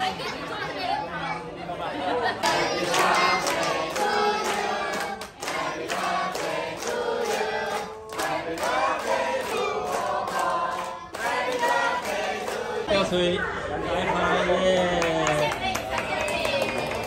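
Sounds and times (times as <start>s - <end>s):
group singing in chorus: 2.2s - 13.2s
hand-clapping: 2.9s - 12.6s, 14.8s - 17.0s.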